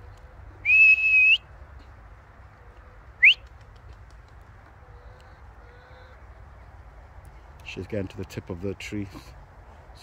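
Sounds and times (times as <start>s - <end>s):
person whistling rising pitch: 0.6s - 1.4s.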